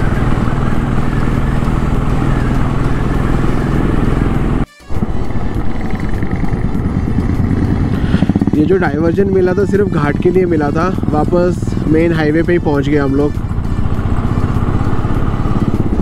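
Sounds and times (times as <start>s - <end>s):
motorcycle engine running: 0.0s - 16.0s
wind rushing: 5.0s - 8.9s.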